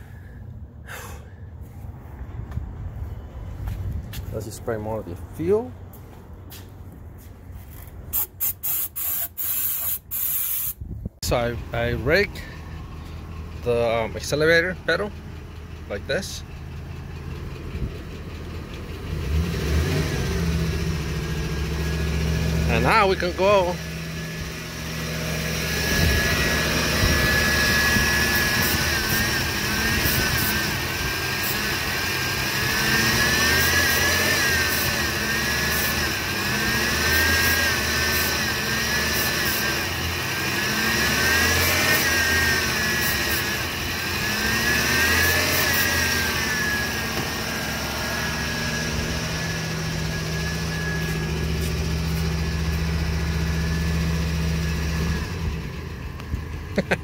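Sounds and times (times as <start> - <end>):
spray can hissing: 8.1 - 10.8
truck engine revving: 11.2 - 57.0.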